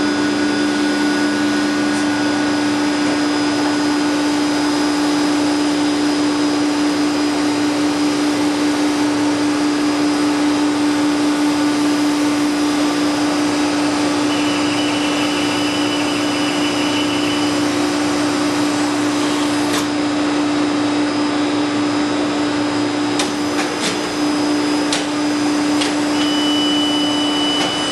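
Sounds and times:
machinery hum: 0:00.0 - 0:27.9
thin high whine: 0:13.2 - 0:19.5, 0:26.1 - 0:27.9.

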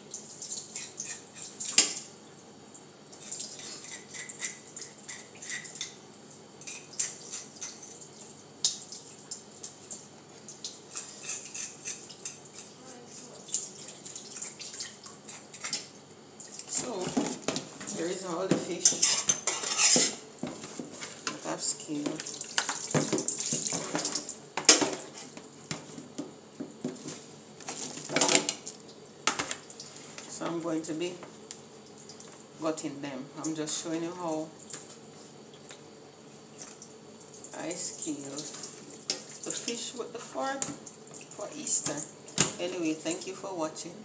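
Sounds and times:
water splashing in a metal sink: 0:00.0 - 0:02.2, 0:03.1 - 0:06.0, 0:06.6 - 0:20.2, 0:21.2 - 0:25.2, 0:36.6 - 0:43.4
fork scraping fish scales: 0:03.3 - 0:05.7, 0:11.0 - 0:12.7, 0:18.8 - 0:20.2.

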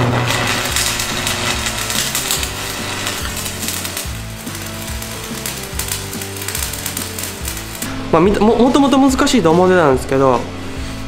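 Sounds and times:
welding arc crackling: 0:00.0 - 0:08.5
background music with bass line: 0:00.0 - 0:11.0.

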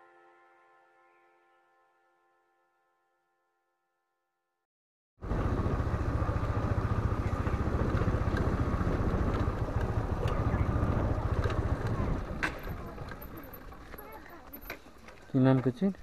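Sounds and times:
motorcycle engine rumble: 0:05.2 - 0:14.7
sharp clicks from dirt track: 0:06.3 - 0:16.0.

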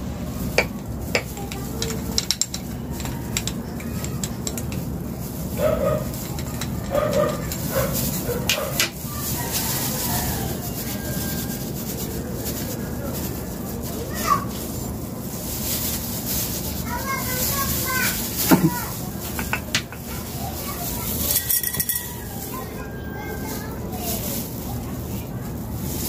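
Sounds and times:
steady hum: 0:00.0 - 0:02.9
dog barking: 0:05.6 - 0:06.2, 0:06.9 - 0:08.8.

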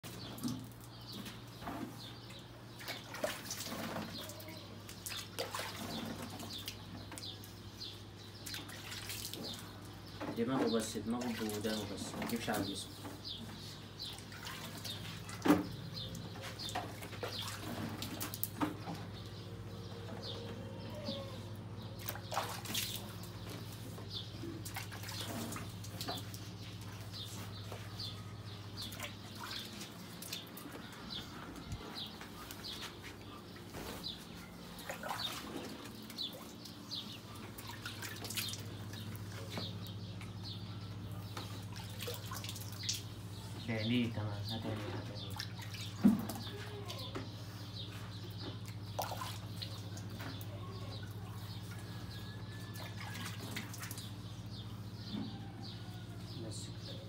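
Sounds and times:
water dripping and trickling: 0:00.1 - 0:13.4, 0:14.0 - 0:19.4, 0:22.0 - 0:27.7, 0:28.4 - 0:31.0, 0:34.8 - 0:40.5, 0:41.2 - 0:43.4, 0:45.2 - 0:46.6, 0:48.1 - 0:51.9, 0:52.7 - 0:54.6.

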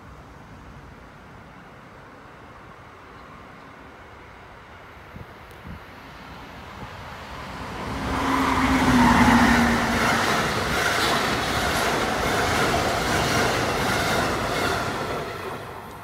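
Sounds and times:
low hum of train: 0:00.0 - 0:16.0
train wheels rolling on rails: 0:06.0 - 0:16.0.

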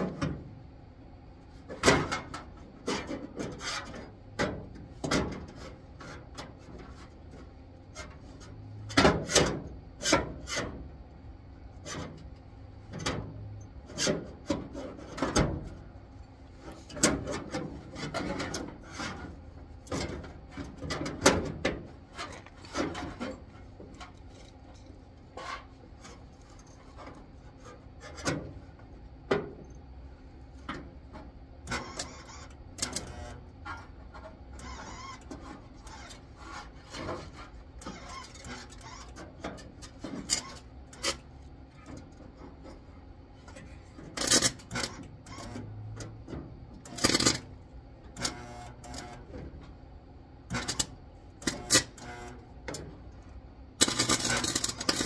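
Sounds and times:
knocks and clanks on metal: 0:01.7 - 0:07.1, 0:08.0 - 0:10.8, 0:12.9 - 0:15.8, 0:16.6 - 0:28.6, 0:29.2 - 0:29.7
harsh crackling noise: 0:53.8 - 0:55.0.

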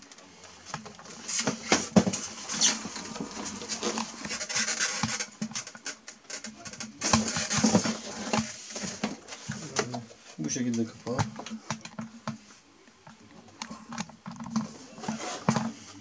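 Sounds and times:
plastic lid scraping and knocking: 0:00.7 - 0:05.9, 0:06.6 - 0:10.1, 0:13.9 - 0:15.9.

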